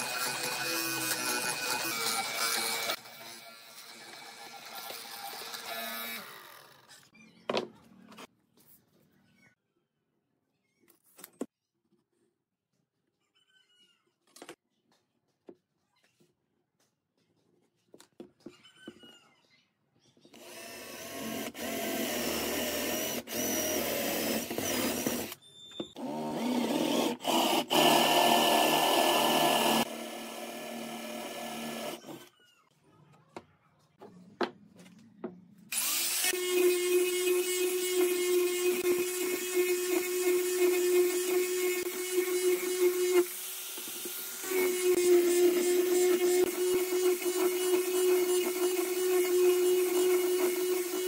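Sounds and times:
cordless drill boring into wood: 0.0s - 6.8s, 20.4s - 25.4s, 26.0s - 32.3s, 35.7s - 51.0s
angle grinder sanding wood: 35.8s - 51.0s.

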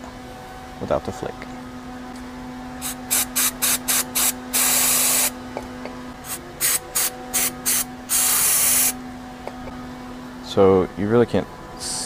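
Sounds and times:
aerosol can spraying: 2.8s - 5.3s, 6.3s - 9.0s.

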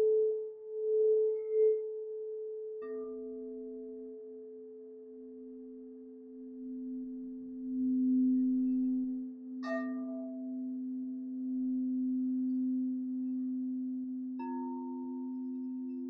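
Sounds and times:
low singing bowl tone: 0.0s - 16.0s
singing bowls struck with mallet: 6.7s - 16.0s.

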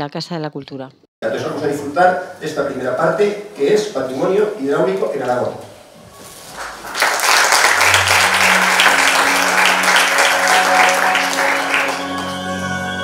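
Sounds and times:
audience applauding: 6.5s - 13.0s
low sustained musical note: 7.7s - 12.3s.

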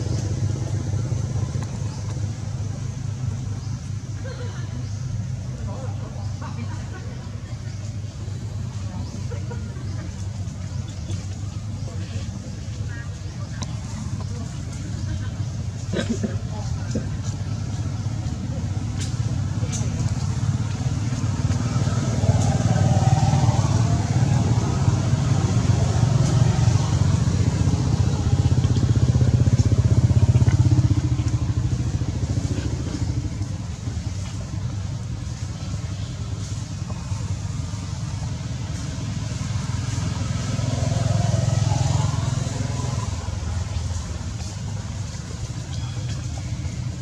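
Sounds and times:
motor vehicles passing: 0.0s - 47.0s.

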